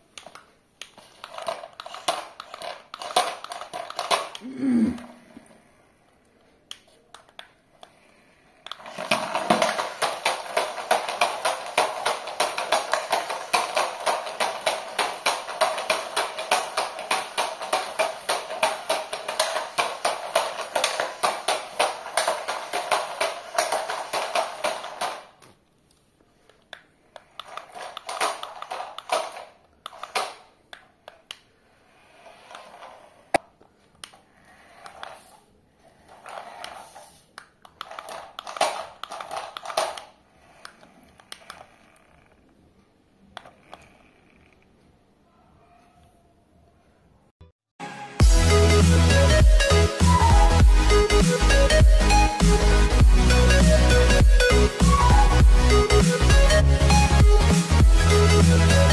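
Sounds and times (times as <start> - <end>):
toy car motors and gears rattling: 0.2 - 4.4, 7.8 - 25.5, 27.0 - 33.5, 34.1 - 42.6, 43.3 - 44.8.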